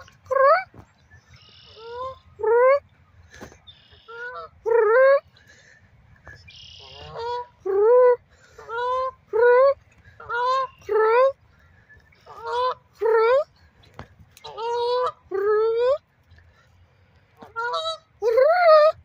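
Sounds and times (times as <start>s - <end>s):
goose honking: 3.7s - 5.0s, 6.5s - 7.6s, 8.5s - 11.3s, 12.2s - 13.4s, 14.4s - 16.0s, 17.4s - 18.1s.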